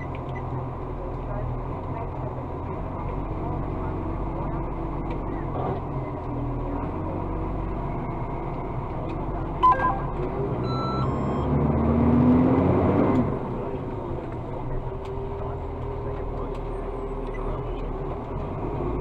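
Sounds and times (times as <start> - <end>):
diesel engine running: 0.0 - 19.0
short electronic beeps: 9.6 - 11.6
rising tone: 9.6 - 11.8.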